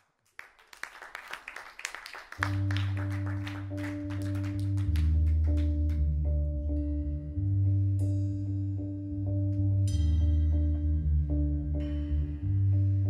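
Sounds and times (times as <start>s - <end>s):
low sustained bass note: 4.7s - 13.0s.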